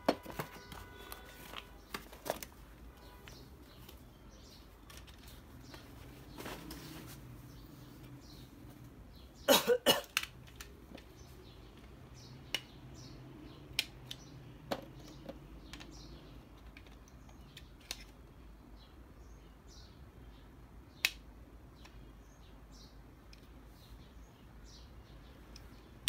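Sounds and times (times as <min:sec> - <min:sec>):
small hard parts clicking: 0:10.0 - 0:12.7.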